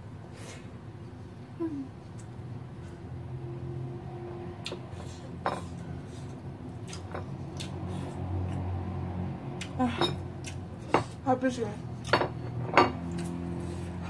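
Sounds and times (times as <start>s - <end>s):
chewing: 6.8s - 8.6s.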